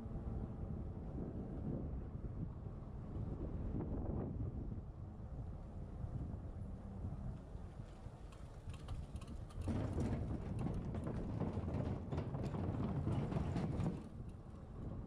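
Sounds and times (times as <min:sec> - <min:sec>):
electric bike rattling and rumbling: 0:07.8 - 0:15.0.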